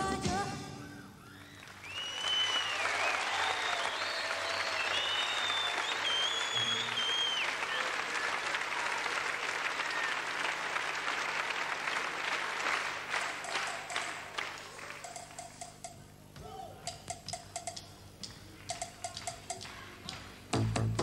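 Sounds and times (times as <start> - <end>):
audience applauding: 1.3 - 15.4.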